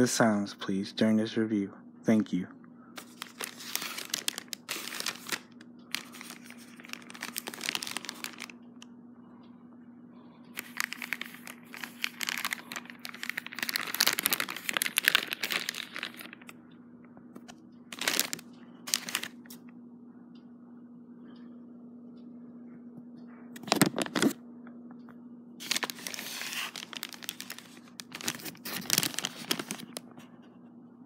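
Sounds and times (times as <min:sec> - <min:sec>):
steady low hum: 0:00.0 - 0:31.0
plastic bag crinkling: 0:03.0 - 0:08.6, 0:10.6 - 0:16.5, 0:17.9 - 0:19.6, 0:23.6 - 0:24.4, 0:25.6 - 0:30.1.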